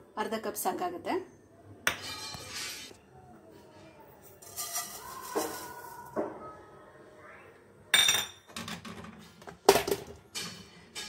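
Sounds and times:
seeds pattering into a pan: 0:04.4 - 0:06.2.

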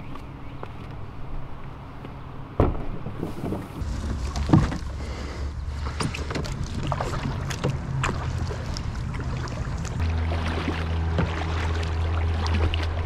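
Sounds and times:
wind rumble on microphone: 0:02.9 - 0:13.0
paddle splashing through water: 0:03.2 - 0:13.0.

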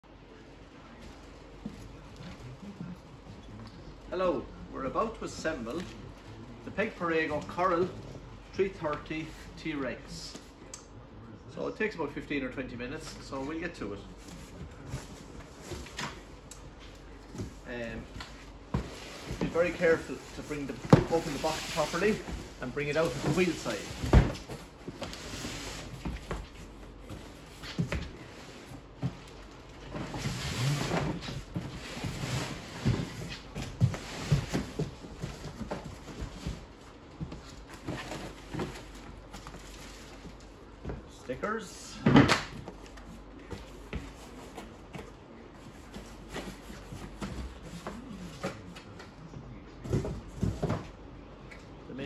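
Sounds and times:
knocks of cardboard and parts: 0:49.8 - 0:50.9.

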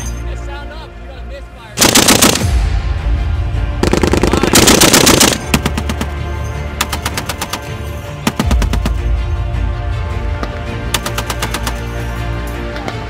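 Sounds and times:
heavy machine gun bursts: 0:01.8 - 0:02.5, 0:03.8 - 0:06.1.

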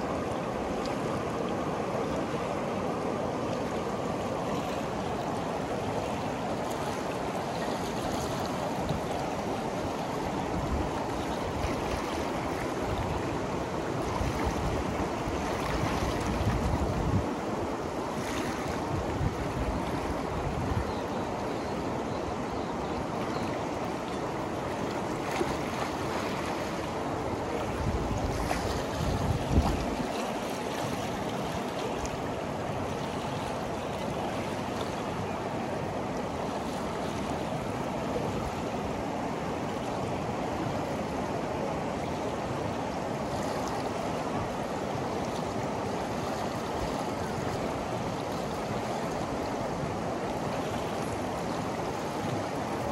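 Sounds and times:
river water rushing and lapping: 0:00.0 - 0:52.9
wind buffeting microphone: 0:14.0 - 0:17.4, 0:27.6 - 0:30.2.

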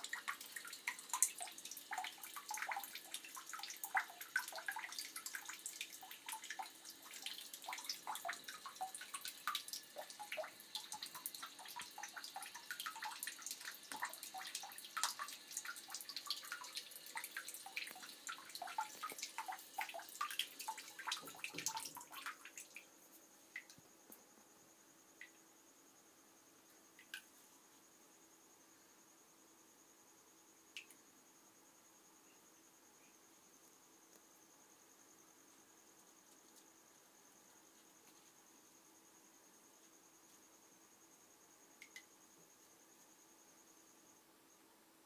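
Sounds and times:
water splashing into a bathtub: 0:00.0 - 0:22.9.

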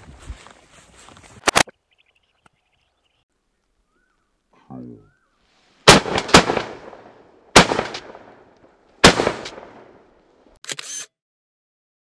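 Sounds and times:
shotgun shots: 0:05.9 - 0:08.4, 0:09.0 - 0:10.0.

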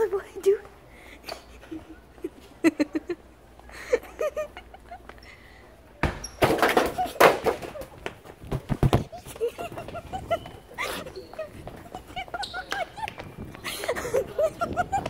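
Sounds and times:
sharp knocks and low thumps: 0:08.5 - 0:09.1
distant voices: 0:09.0 - 0:15.0.

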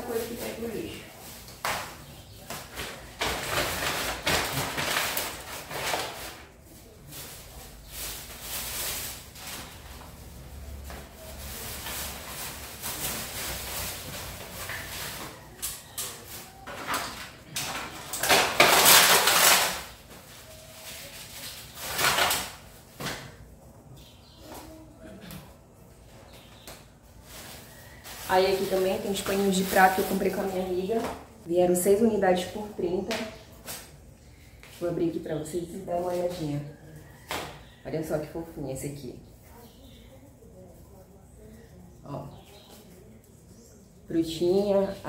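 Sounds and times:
plastic and paper bags rustling: 0:00.0 - 0:23.6, 0:26.2 - 0:37.8
small items knocking: 0:16.7 - 0:20.0.

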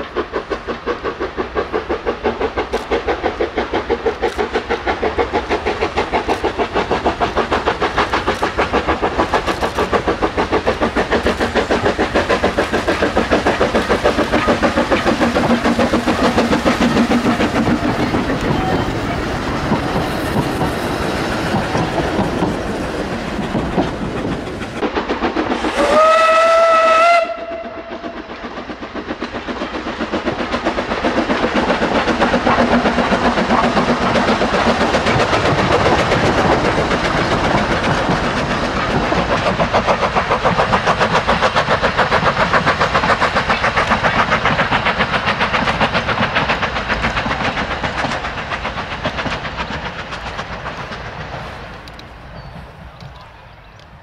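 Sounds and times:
steam locomotive exhaust beats: 0:00.0 - 0:54.0
steam whistle: 0:25.7 - 0:28.2.

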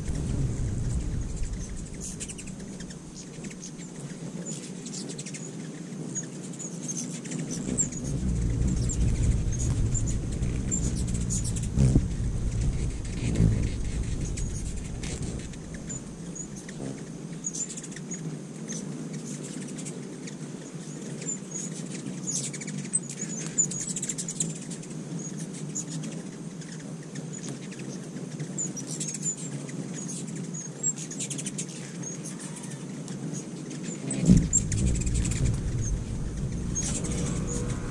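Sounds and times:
low rumble: 0:00.0 - 0:04.0, 0:07.5 - 0:17.0, 0:34.2 - 0:37.9
hummingbird chip calls: 0:00.0 - 0:18.0, 0:34.0 - 0:37.9
hummingbird wings buzzing: 0:00.0 - 0:37.9.

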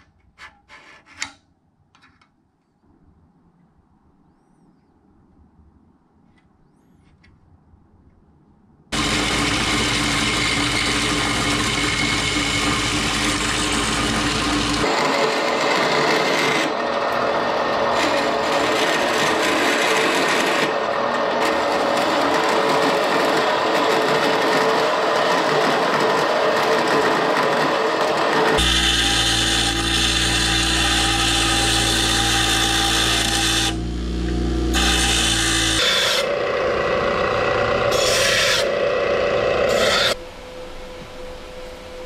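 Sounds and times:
band saw cutting metal: 0:09.0 - 0:40.2.

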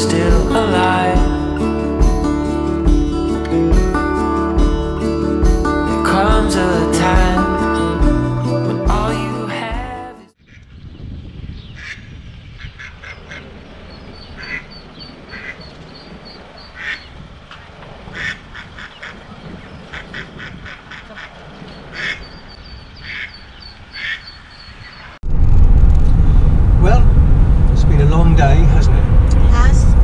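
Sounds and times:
ducklings peeping: 0:11.7 - 0:17.2, 0:18.2 - 0:25.2
duck quacking: 0:14.4 - 0:14.7, 0:15.3 - 0:15.7, 0:16.7 - 0:17.1, 0:18.1 - 0:19.2, 0:19.9 - 0:22.3, 0:23.0 - 0:24.4
street noise rumble: 0:20.5 - 0:30.0.

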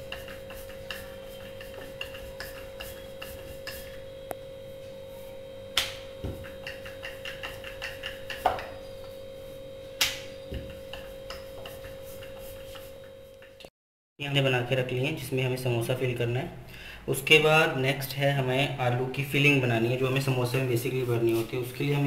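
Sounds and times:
steady hum: 0:00.0 - 0:13.7.

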